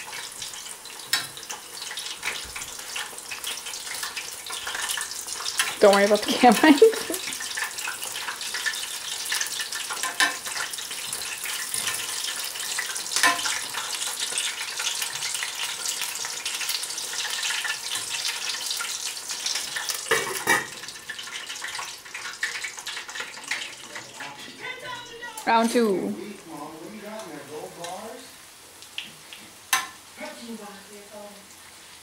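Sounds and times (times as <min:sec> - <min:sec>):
chicken frying in hot oil: 0:00.0 - 0:32.0.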